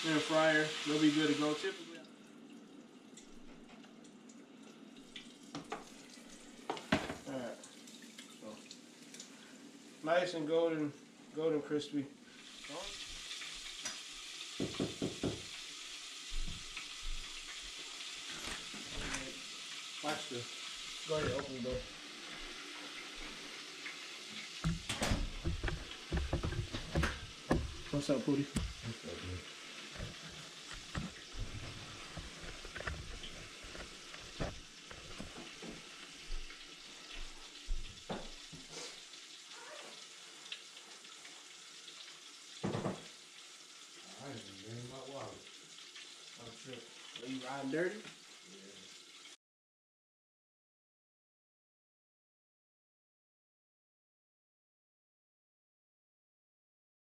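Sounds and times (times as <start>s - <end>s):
hot oil sizzling in a fryer: 0.0s - 2.1s, 3.0s - 49.4s
knocks: 14.6s - 15.5s.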